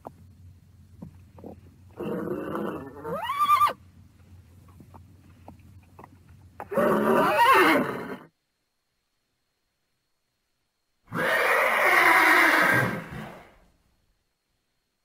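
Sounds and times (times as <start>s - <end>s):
horse whinnying: 2.0s - 3.8s, 6.6s - 8.3s, 11.1s - 13.6s.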